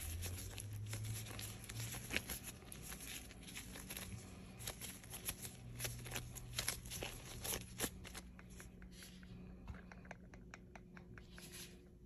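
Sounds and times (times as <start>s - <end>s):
plastic gloves rustling: 0.0s - 9.6s.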